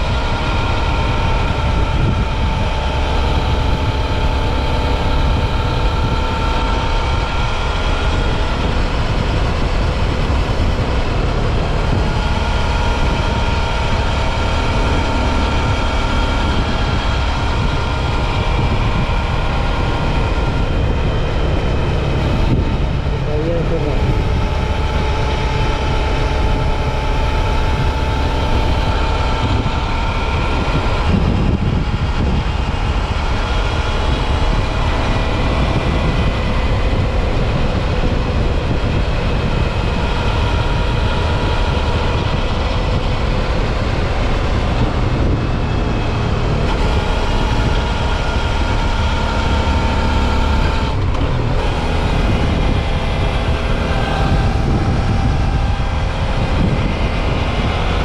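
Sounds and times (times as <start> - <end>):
motorcycle engine cruising: 0.0 - 58.0
road noise: 0.0 - 58.0
rumble of wind: 0.0 - 58.0.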